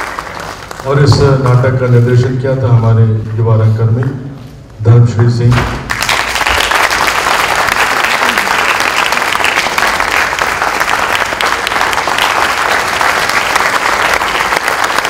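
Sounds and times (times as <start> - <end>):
audience applause: 0.0 - 1.6, 5.9 - 15.0.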